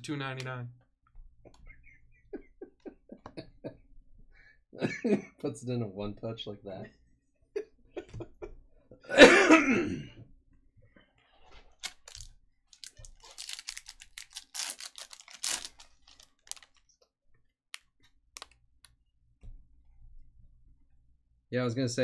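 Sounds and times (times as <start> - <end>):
foil pack crinkling and tearing: 11.8 - 16.9.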